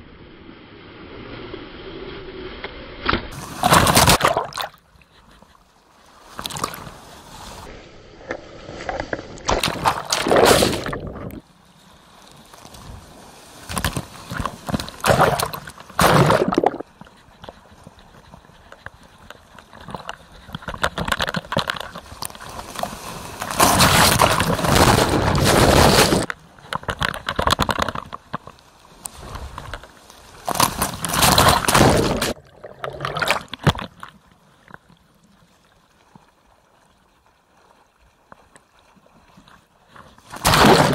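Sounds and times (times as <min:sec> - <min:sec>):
water lapping: 0:03.3 - 0:07.8, 0:08.5 - 0:40.9
seawater rushing and sloshing: 0:03.3 - 0:28.1, 0:28.9 - 0:34.0, 0:35.5 - 0:40.9
water splashing: 0:03.3 - 0:40.9.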